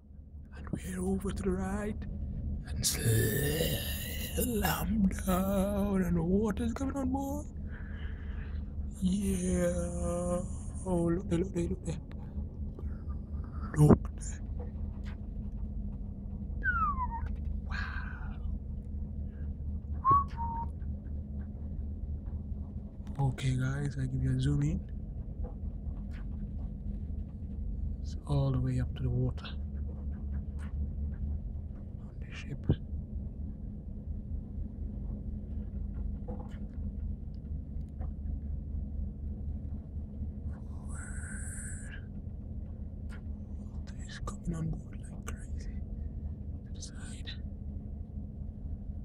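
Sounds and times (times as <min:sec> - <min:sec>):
ship hum: 0:00.0 - 0:49.0.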